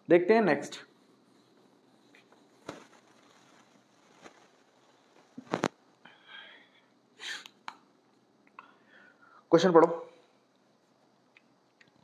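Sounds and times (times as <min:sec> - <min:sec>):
soft rustle: 0:00.8 - 0:06.0.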